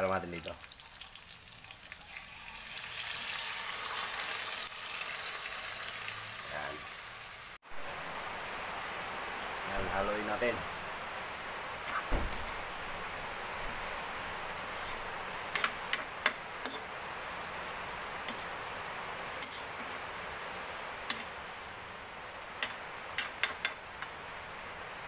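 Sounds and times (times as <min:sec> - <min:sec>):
steady hiss: 0:06.1 - 0:25.0.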